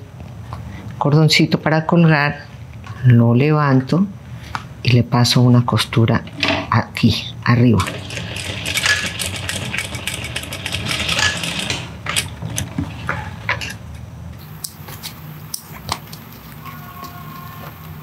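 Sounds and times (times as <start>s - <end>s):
sewing machine stitching: 7.8s - 13.5s.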